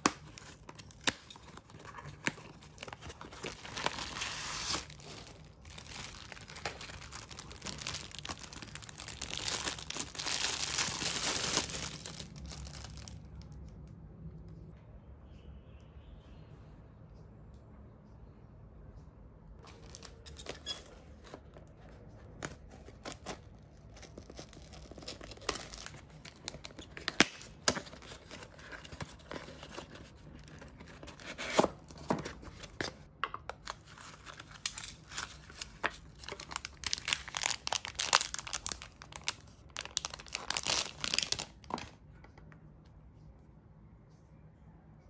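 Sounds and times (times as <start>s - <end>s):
packaging crinkling and tearing: 0.0s - 13.7s, 19.6s - 42.0s.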